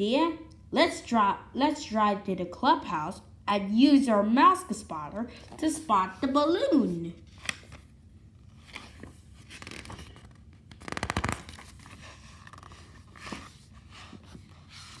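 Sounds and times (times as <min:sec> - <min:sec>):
book pages turning: 0:05.3 - 0:15.0.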